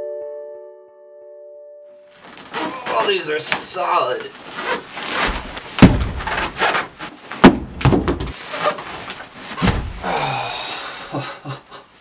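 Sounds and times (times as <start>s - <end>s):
rustling of sleeping pad: 2.1s - 7.4s, 8.3s - 10.1s
boots thudding on wooden floor: 5.2s - 8.4s.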